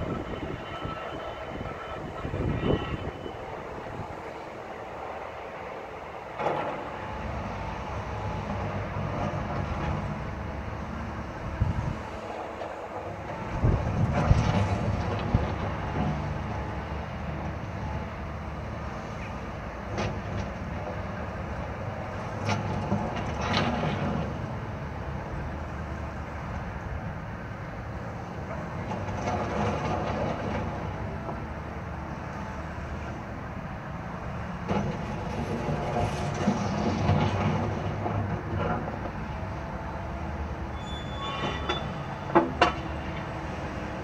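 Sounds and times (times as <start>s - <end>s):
excavator diesel engine running: 27.8s - 41.2s.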